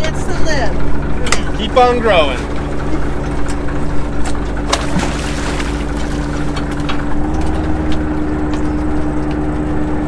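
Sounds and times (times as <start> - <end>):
boat engine and hauler hum: 0.0 - 10.0.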